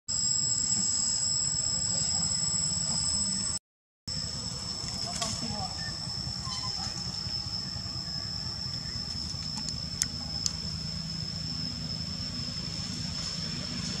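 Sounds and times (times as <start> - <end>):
steady high-pitched whine: 0.1 - 14.0
low engine-like rumble: 4.2 - 14.0
sharp clicks: 9.4 - 10.6.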